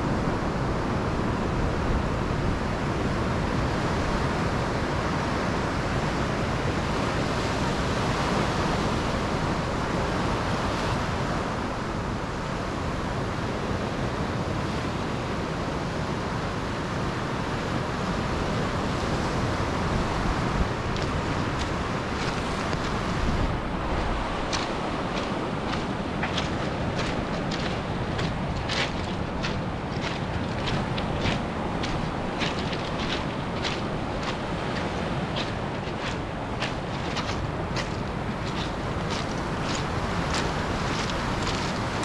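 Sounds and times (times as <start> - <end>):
wind on microphone: 0.0 - 42.0
surf washing up pebble beach: 16.8 - 42.0.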